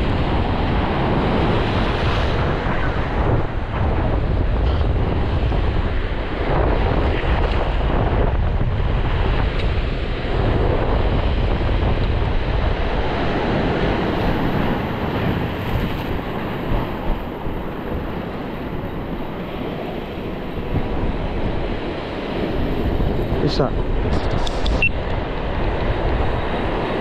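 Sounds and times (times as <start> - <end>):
surf washing on shore: 0.0 - 27.0
wind buffeting microphone: 0.0 - 27.0.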